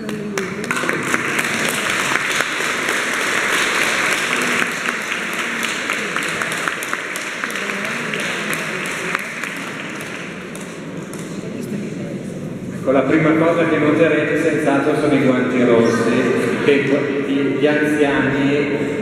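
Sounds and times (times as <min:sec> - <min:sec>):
audience applauding: 0:00.0 - 0:11.5.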